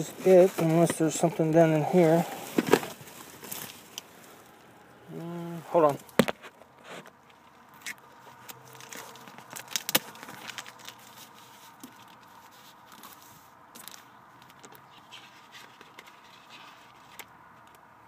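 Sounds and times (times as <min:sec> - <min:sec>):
hands rummaging in cardboard box: 0:00.0 - 0:04.0.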